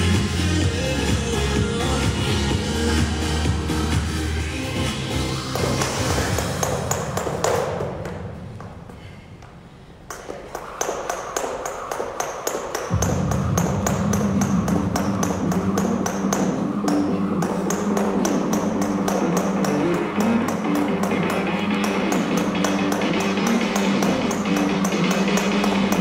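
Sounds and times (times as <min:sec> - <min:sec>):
background music with heavy bass: 0:00.0 - 0:07.4, 0:13.0 - 0:26.0
jump rope ticking on floor: 0:10.1 - 0:26.0.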